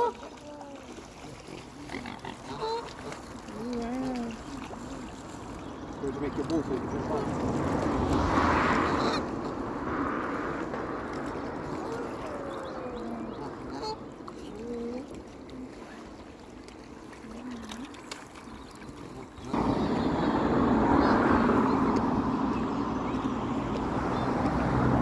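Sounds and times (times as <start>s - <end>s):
loud rush of noise: 19.5s - 24.0s.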